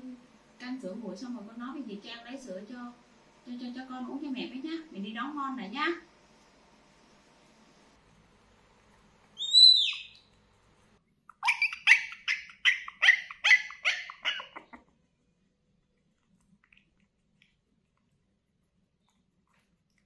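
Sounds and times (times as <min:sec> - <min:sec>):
puppy yelping: 0:11.3 - 0:14.8
puppy whining: 0:11.3 - 0:14.9.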